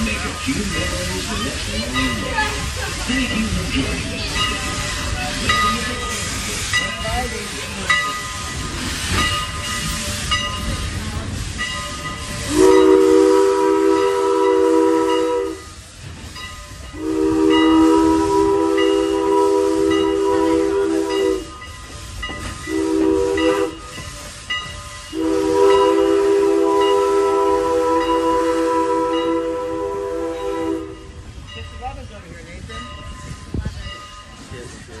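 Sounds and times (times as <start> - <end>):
moving train rumble: 0.0 - 35.0
steam locomotive whistle: 12.2 - 15.9, 16.9 - 21.6, 22.6 - 24.3, 25.1 - 31.2.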